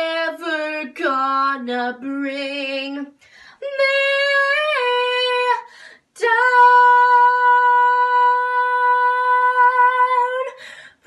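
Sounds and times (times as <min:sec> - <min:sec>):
girl singing: 0:00.0 - 0:11.0
girl breathing in: 0:10.6 - 0:11.0.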